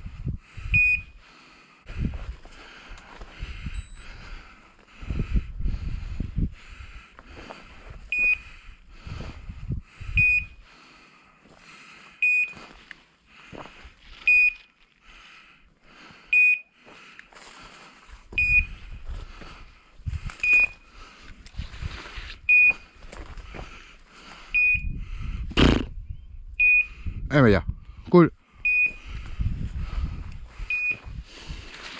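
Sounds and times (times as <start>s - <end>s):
dog collar beeper beeping: 0.8s - 1.1s, 3.7s - 4.1s, 10.2s - 10.5s, 26.6s - 26.9s
rustling through dry scrub: 20.1s - 24.3s, 31.0s - 31.9s.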